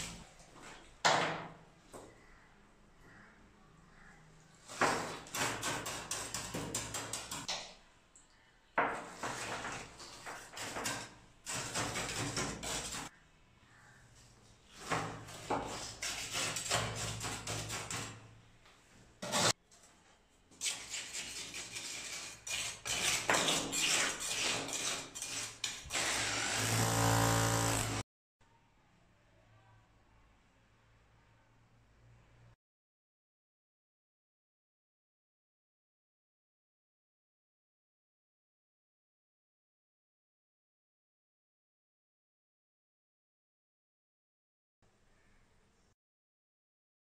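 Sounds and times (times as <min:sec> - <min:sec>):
trowel scraping wet concrete: 0:09.0 - 0:13.1, 0:14.7 - 0:18.2, 0:19.2 - 0:19.6, 0:20.5 - 0:25.9
electric drill running: 0:25.9 - 0:28.0.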